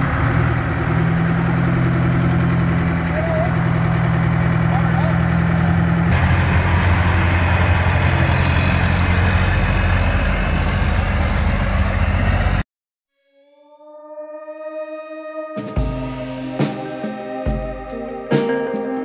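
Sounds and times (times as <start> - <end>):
truck engine droning: 0.0 - 12.6
music: 13.1 - 19.0.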